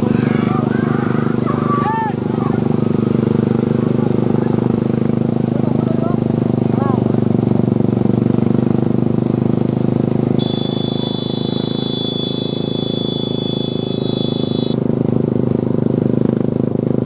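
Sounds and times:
vehicle engine running: 0.0 - 17.0
high-pitched tone: 10.4 - 14.8.

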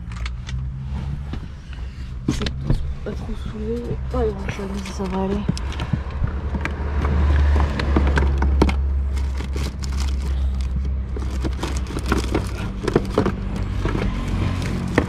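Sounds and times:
steady low rumble: 0.0 - 15.0
plastic packets crinkling: 8.2 - 15.0.

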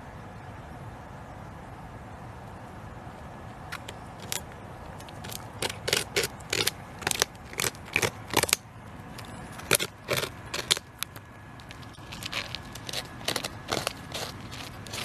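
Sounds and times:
beaver gnawing wood: 3.6 - 15.0.

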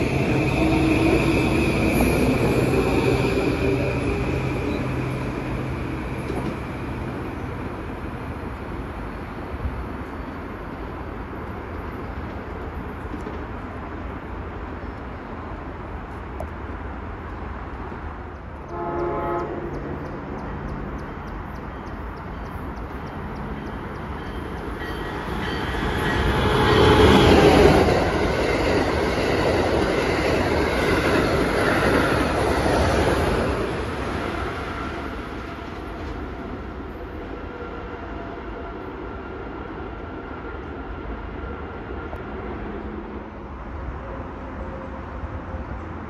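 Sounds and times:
train passing at speed: 0.0 - 46.0
train horn blast: 18.6 - 20.1.

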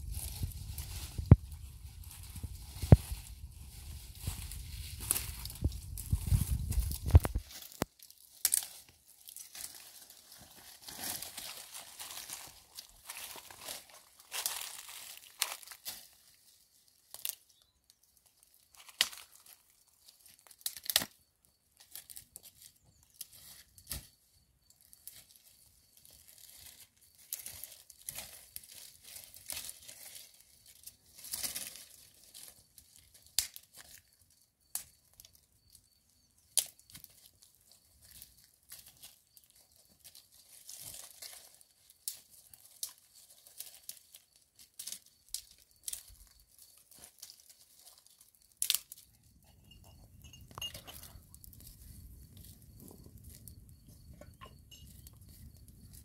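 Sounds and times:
rustling of brushwood: 0.0 - 17.6, 21.8 - 24.2, 24.8 - 34.2, 36.5 - 56.0
twigs snapping and crackling: 0.0 - 21.2, 26.0 - 34.1, 36.5 - 49.1.

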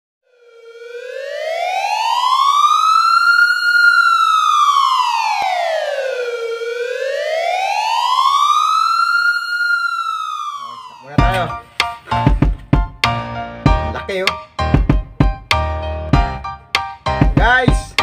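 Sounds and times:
siren wailing: 0.2 - 11.8.

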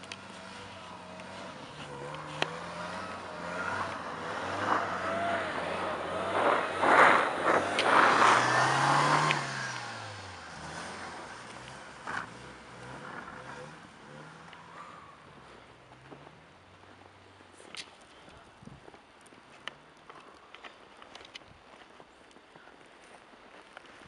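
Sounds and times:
car engine revving: 0.0 - 15.5
tyres spinning on snow whine: 0.2 - 14.7.

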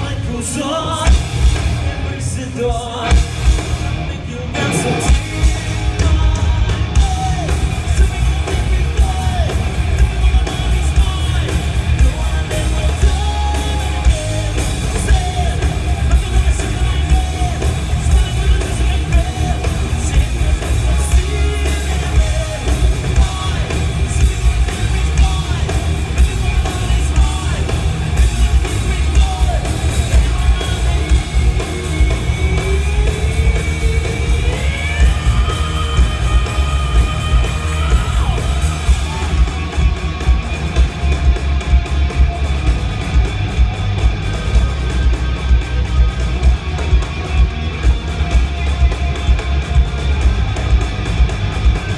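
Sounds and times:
hard rock band playing: 0.0 - 51.9
person yelling and singing: 4.1 - 40.5.

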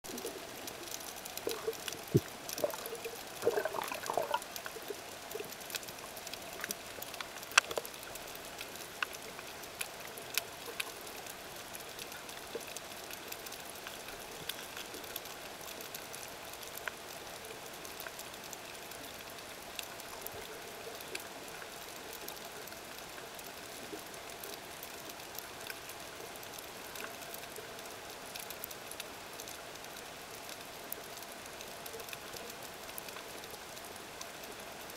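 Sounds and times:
sharp underwater clicks and crackles: 0.0 - 34.9
water bubbling: 0.1 - 6.0
steady underwater hiss: 0.1 - 34.9.

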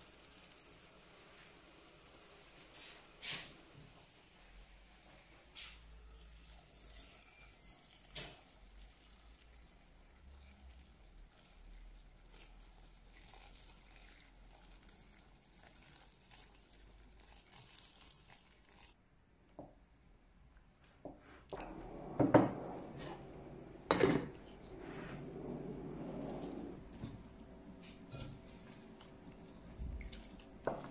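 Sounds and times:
water pouring into pot: 6.3 - 19.0.

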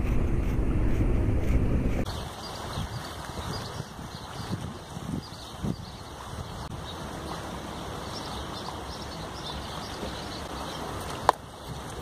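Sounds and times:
wind noise on microphone: 0.0 - 12.0
river water flowing: 2.0 - 12.0.

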